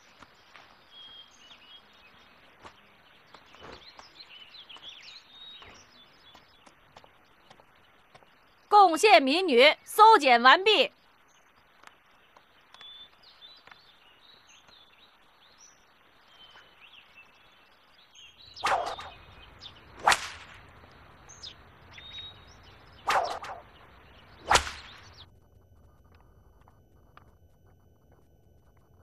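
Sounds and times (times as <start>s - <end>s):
faint bird chirps: 0.0s - 20.1s, 21.2s - 25.3s
whip cracks: 18.6s - 19.2s, 20.0s - 20.6s, 23.1s - 23.7s, 24.4s - 25.1s.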